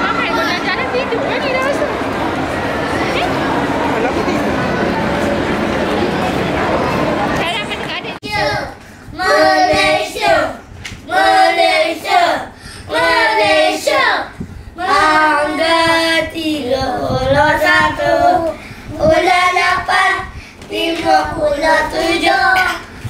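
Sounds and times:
children singing: 0:08.3 - 0:22.8.

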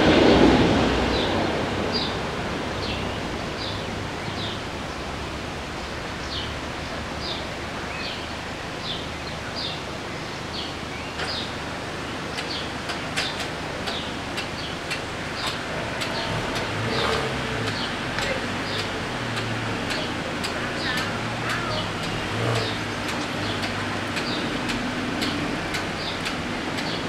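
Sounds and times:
steady outdoor hiss: 0:00.0 - 0:27.0
sharp clicks: 0:12.4 - 0:27.0.

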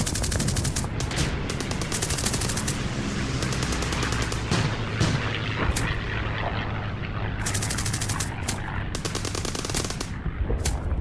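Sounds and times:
machine-gun fire: 0:00.0 - 0:02.8, 0:03.4 - 0:06.0, 0:07.4 - 0:10.8
low rumble: 0:00.0 - 0:11.0.

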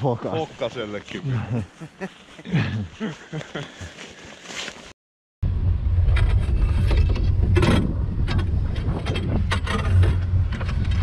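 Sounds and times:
wind buffeting microphone: 0:06.4 - 0:11.0.

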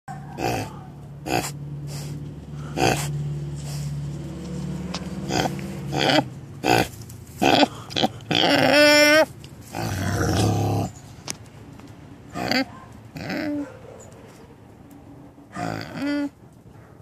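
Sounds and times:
pig high-pitched call: 0:00.2 - 0:01.6, 0:05.3 - 0:10.7, 0:15.6 - 0:16.3
pig grunting: 0:00.3 - 0:03.3, 0:05.2 - 0:11.0, 0:12.3 - 0:13.6, 0:15.5 - 0:16.4.

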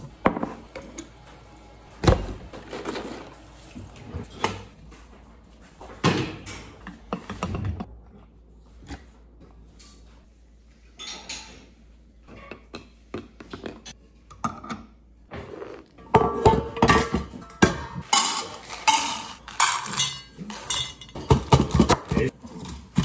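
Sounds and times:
metal bowls clanking and scraping: 0:10.9 - 0:12.7, 0:15.4 - 0:23.0.

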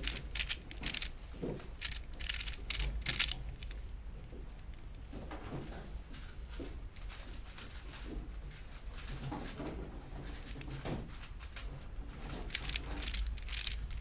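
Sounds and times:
puzzle cube layers clicking: 0:00.0 - 0:03.8, 0:12.4 - 0:14.0.

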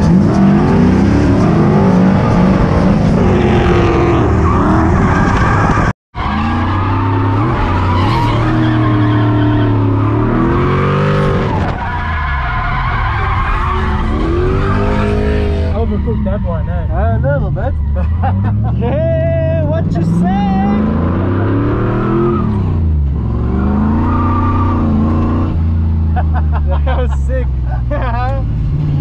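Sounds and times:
car engine revving: 0:00.0 - 0:29.0
tyres skidding and squealing: 0:00.0 - 0:29.0.

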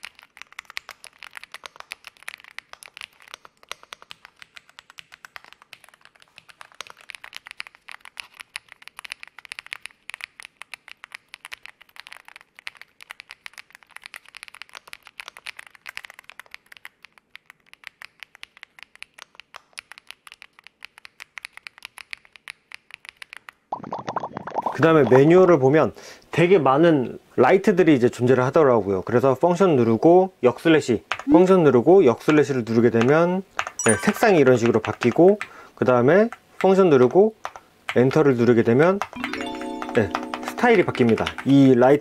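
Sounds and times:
mechanical keyboard typing: 0:00.0 - 0:17.0, 0:33.6 - 0:35.6, 0:36.2 - 0:42.0.

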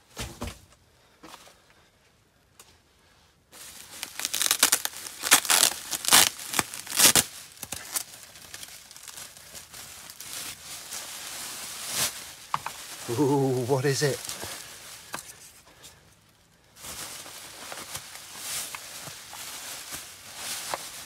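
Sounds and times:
bubble wrap crinkling: 0:03.6 - 0:21.0.

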